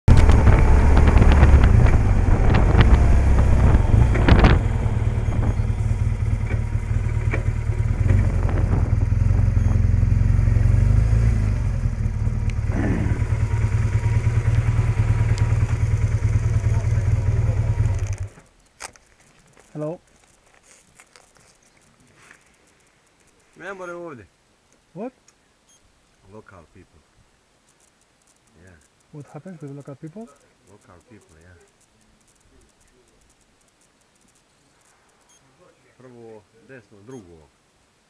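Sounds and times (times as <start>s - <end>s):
motorcycle engine: 0.0s - 18.5s.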